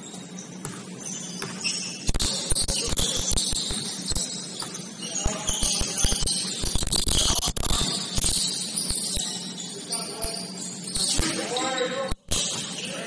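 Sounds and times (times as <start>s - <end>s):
sneakers squeaking on court: 0.0s - 13.0s
basketball bouncing: 0.6s - 9.0s.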